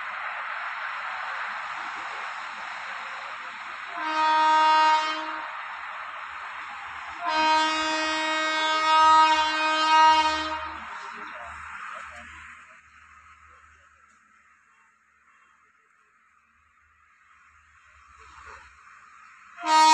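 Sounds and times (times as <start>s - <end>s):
steady rushing noise: 0.0s - 4.0s, 5.0s - 8.5s
train horn blasts: 3.9s - 5.6s, 7.2s - 11.2s, 19.6s - 19.9s.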